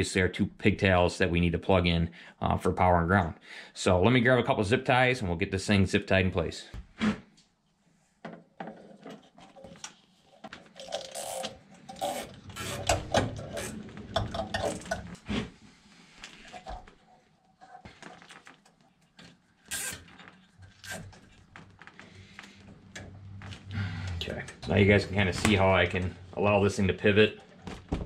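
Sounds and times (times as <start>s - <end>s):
zip ties ratcheting: 19.7s - 20.1s.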